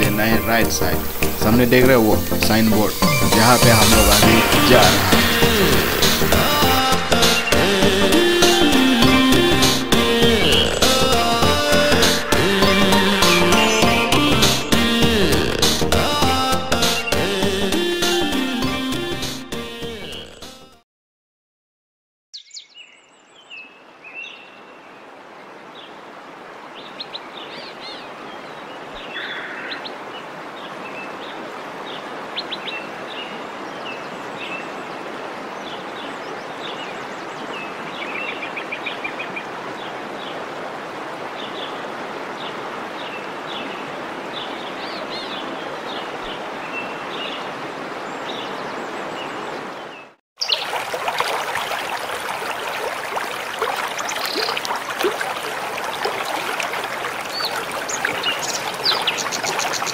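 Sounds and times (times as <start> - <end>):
birds chirping: 0.0 - 9.6, 26.8 - 40.4, 51.6 - 59.9
flowing water rushing: 0.0 - 15.9, 24.6 - 59.9
waterfall rushing: 0.0 - 16.2, 50.4 - 59.9.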